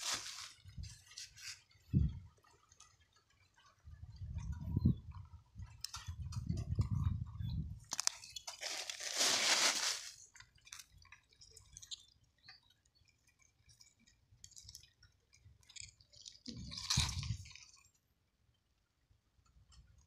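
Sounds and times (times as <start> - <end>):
small ticks of grit: 0.0 - 7.2, 7.8 - 17.9
rock scraping on soil: 8.6 - 10.2.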